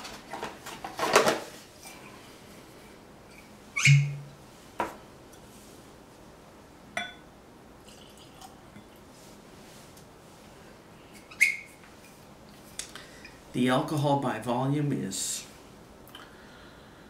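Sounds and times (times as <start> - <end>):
glassy knock: 3.8 - 4.3
glass clinks and taps: 7.0 - 7.2
liquid pouring into glass: 7.8 - 8.6.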